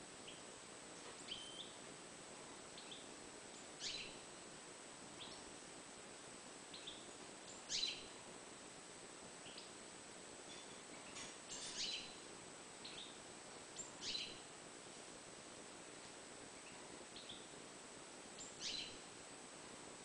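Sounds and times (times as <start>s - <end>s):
goldfinch chirping: 1.2s - 1.8s, 2.8s - 4.2s, 6.7s - 8.2s, 11.5s - 12.2s, 12.8s - 13.2s, 13.8s - 14.4s, 18.4s - 19.0s
sharp bird calls: 3.8s - 4.2s, 6.7s - 8.2s, 11.5s - 12.2s, 13.8s - 14.4s, 18.4s - 19.0s.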